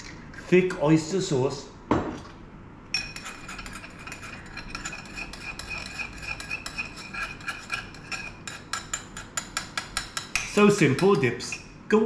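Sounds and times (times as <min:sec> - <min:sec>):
metal spoon clinking ceramic bowl: 0:03.0 - 0:11.6.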